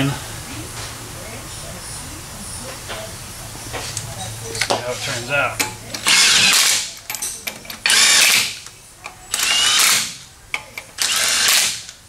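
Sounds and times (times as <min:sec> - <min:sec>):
cordless grease gun running: 0:06.0 - 0:06.9, 0:07.8 - 0:08.6, 0:09.3 - 0:10.2, 0:11.0 - 0:12.0.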